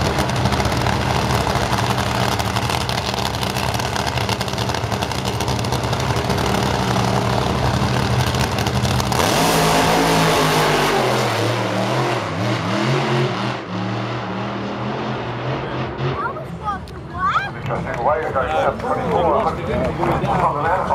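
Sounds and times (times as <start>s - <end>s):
drag racing car engine: 0.0s - 18.8s.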